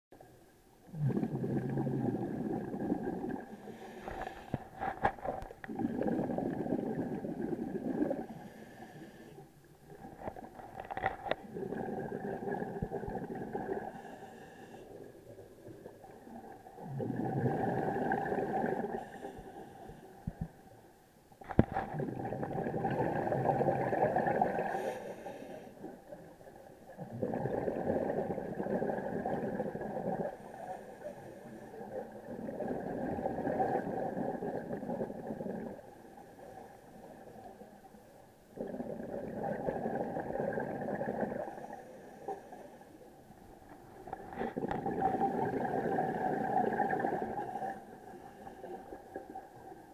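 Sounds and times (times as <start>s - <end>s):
diver exhaling bubbles underwater: 0.9s - 8.6s, 9.9s - 14.1s, 16.2s - 19.4s, 21.6s - 24.9s, 26.9s - 30.5s, 31.8s - 36.0s, 38.5s - 41.8s, 44.2s - 47.8s.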